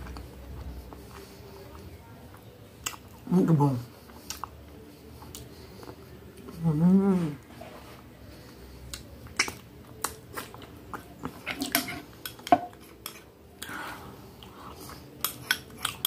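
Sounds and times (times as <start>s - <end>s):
metal spoon scraping glass bowl: 11.5s - 13.2s.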